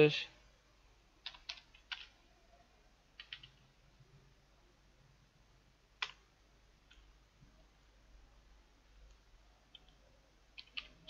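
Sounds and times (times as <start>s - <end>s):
computer keyboard keystrokes: 1.2s - 2.1s, 3.2s - 3.6s, 6.0s - 6.2s, 10.6s - 11.0s.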